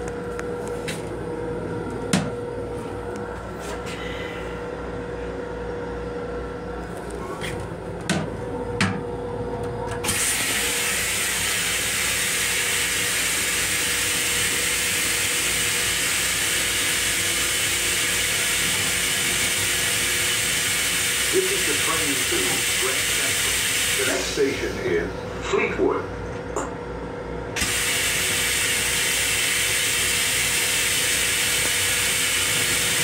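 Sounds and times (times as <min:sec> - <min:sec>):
steady hum: 0:00.0 - 0:33.0
hissing rush of toilet flush: 0:10.0 - 0:24.8, 0:27.6 - 0:33.0.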